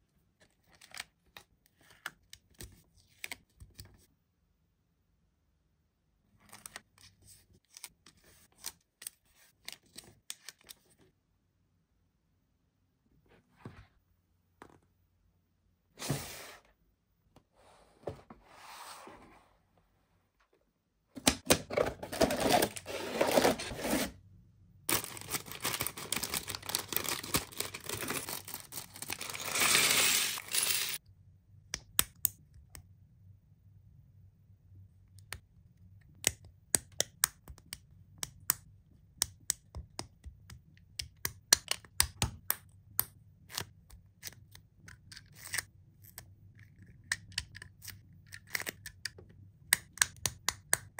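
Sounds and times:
packaging tearing and rustling: 0:21.7 - 0:24.1, 0:24.9 - 0:31.0.

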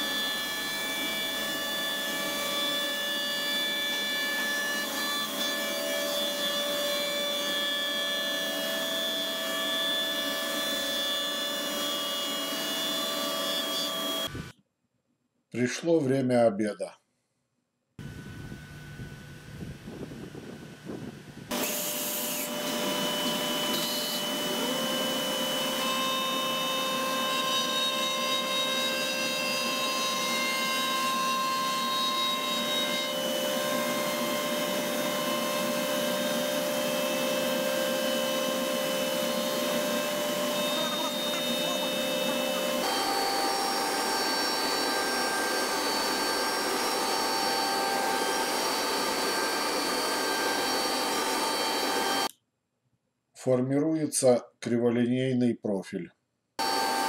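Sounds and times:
router spindle cutting noise: 0:30.8 - 0:52.3, 0:56.6 - 0:57.0.

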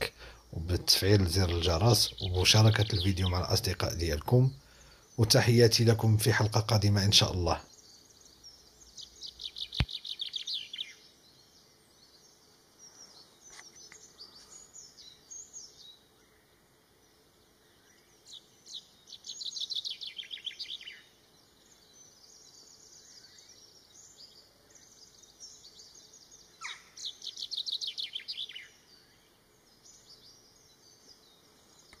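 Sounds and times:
faint bird calls: 0:00.0 - 0:11.0, 0:17.6 - 0:32.0
chaffinch singing: 0:00.0 - 0:16.4, 0:17.1 - 0:32.0
sharp click: 0:09.8 - 0:10.0.

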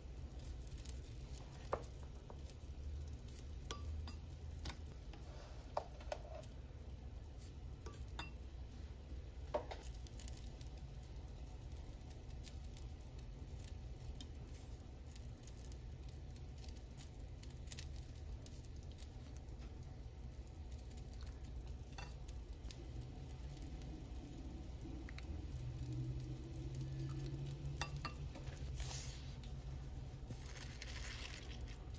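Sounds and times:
steady low hum: 0:00.0 - 0:31.9.

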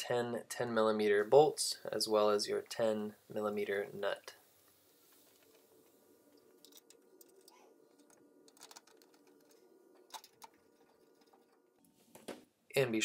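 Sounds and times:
small metal parts clicking: 0:06.6 - 0:11.7.

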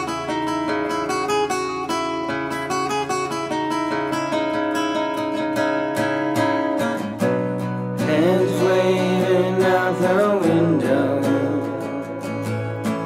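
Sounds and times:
strummed acoustic guitar: 0:00.0 - 0:13.0
person singing: 0:08.0 - 0:13.0.

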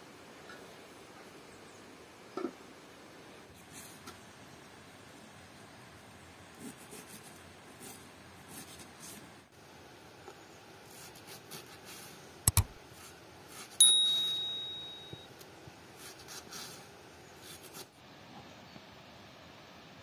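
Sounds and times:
quick double click: 0:12.5 - 0:12.7
bell ding: 0:13.8 - 0:15.3.

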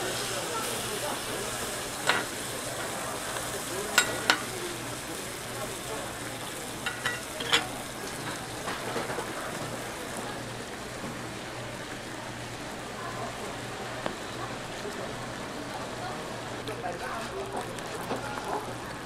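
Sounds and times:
food sizzling on griddle: 0:00.0 - 0:19.0
spatula clacking on metal: 0:02.0 - 0:02.9, 0:03.9 - 0:04.5, 0:06.8 - 0:08.4.

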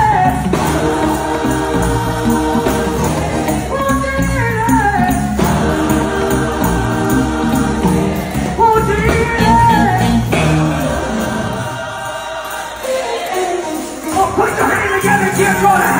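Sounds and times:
gospel choir singing: 0:00.0 - 0:15.9
instrumental backing: 0:00.0 - 0:15.9.

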